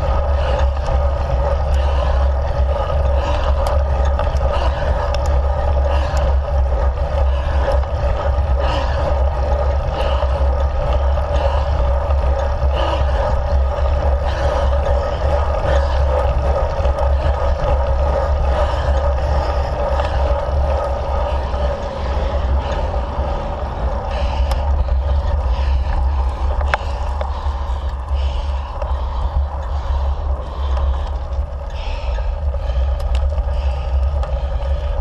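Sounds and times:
faint ticks: 0.0s - 21.8s, 24.1s - 35.0s
constant hum: 0.0s - 35.0s
road rumble: 0.0s - 35.0s
wind on microphone: 0.0s - 35.0s.

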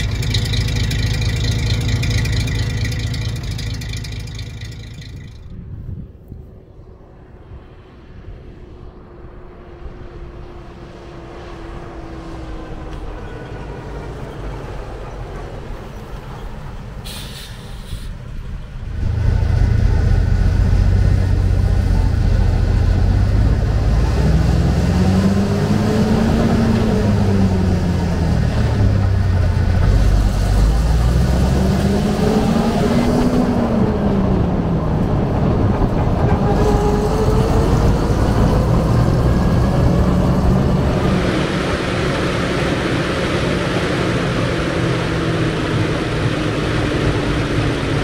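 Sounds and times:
truck engine: 0.0s - 5.7s, 6.8s - 48.0s
brief hiss: 17.0s - 18.3s.

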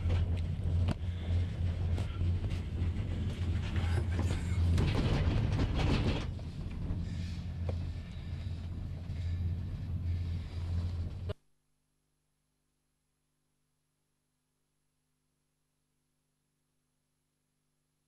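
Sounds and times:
gondola cabin low hum: 0.0s - 11.4s.

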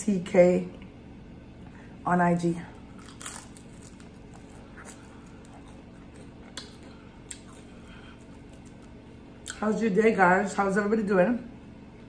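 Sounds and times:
steady low hum: 0.0s - 12.0s
chewing fried food: 2.8s - 9.6s.

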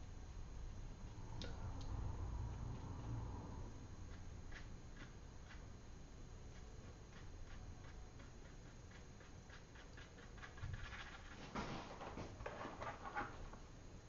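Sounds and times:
scratchy brush strokes on paper: 6.5s - 11.6s.

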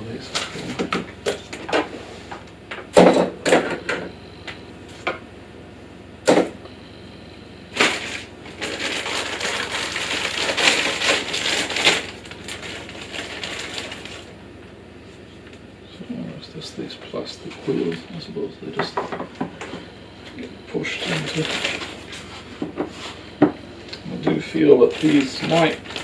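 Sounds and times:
plastic bag crinkling: 7.8s - 14.3s, 21.0s - 22.3s, 24.0s - 26.0s.

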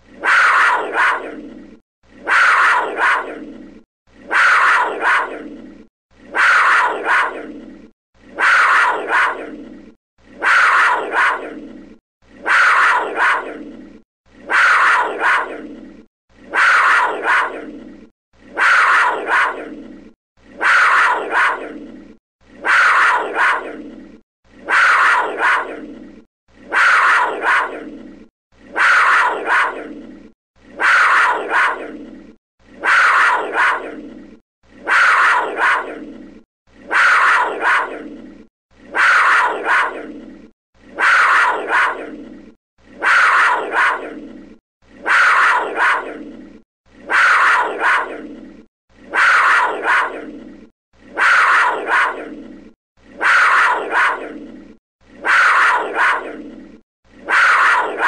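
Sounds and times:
big cat call: 0.2s - 1.4s, 2.2s - 3.4s, 4.3s - 5.5s, 6.3s - 7.5s, 8.4s - 9.5s, 10.4s - 11.6s, 12.4s - 13.6s, 14.5s - 15.6s, 16.5s - 17.7s, 18.5s - 19.8s, 20.6s - 21.9s, 22.6s - 23.8s, 24.6s - 25.9s, 26.7s - 28.0s, 28.7s - 30.0s, 30.8s - 32.0s, 32.8s - 34.0s, 34.8s - 36.0s, 36.9s - 38.1s, 38.9s - 40.1s, 41.0s - 42.2s, 43.0s - 44.2s, 45.0s - 46.2s, 47.1s - 48.2s, 49.1s - 50.3s, 51.2s - 52.3s, 53.2s - 54.4s, 55.2s - 56.4s, 57.3s - 58.0s.

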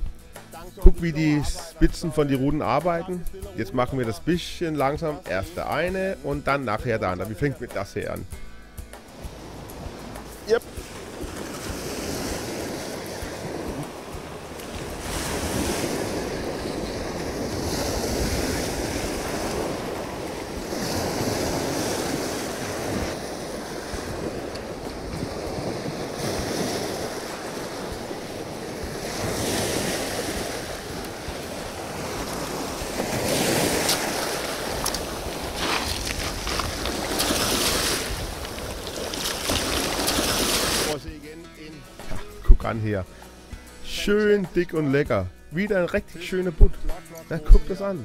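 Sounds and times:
small waves on shingle beach: 9.0s - 41.0s
wind on microphone: 9.1s - 41.0s.

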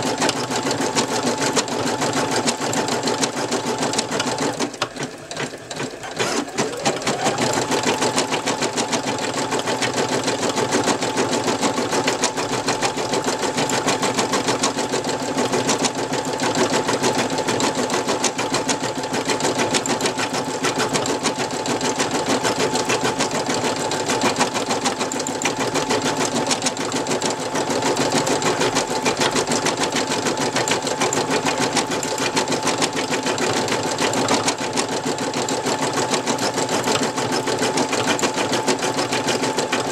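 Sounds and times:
embroidery machine stitching: 0.0s - 39.9s.

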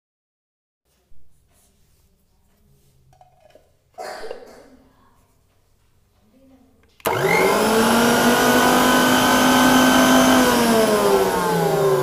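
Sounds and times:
food processor motor whining: 7.0s - 12.0s.

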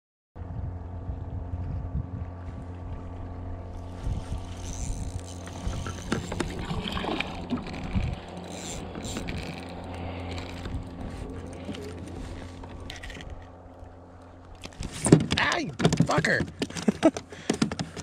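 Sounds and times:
electric trolling motor humming: 0.4s - 15.6s
fishing gear clicks and rattles: 3.7s - 18.0s.

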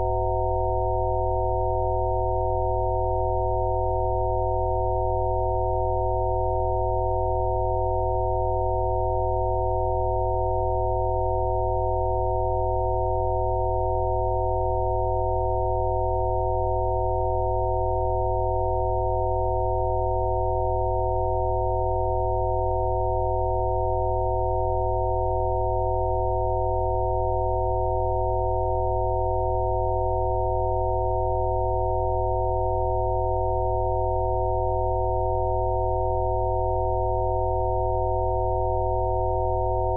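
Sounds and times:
electronic sine tones: 0.0s - 39.9s.

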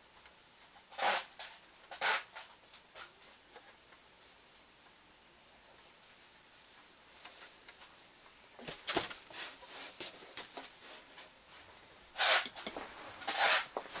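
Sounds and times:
rustling scrapes: 5.8s - 14.0s.

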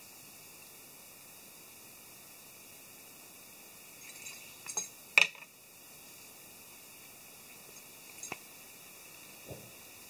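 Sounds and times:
light metallic clicks and clinks: 4.0s - 5.5s, 7.7s - 8.5s.

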